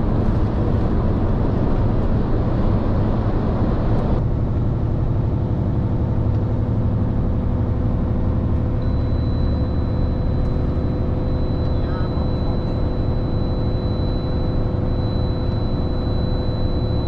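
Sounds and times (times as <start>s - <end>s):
truck engine and road noise: 0.0s - 17.0s
high-pitched warning beep: 8.8s - 17.0s.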